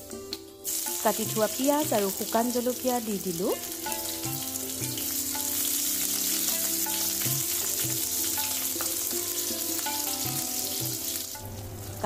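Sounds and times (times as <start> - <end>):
onions sizzling in hot oil: 0.6 - 12.0.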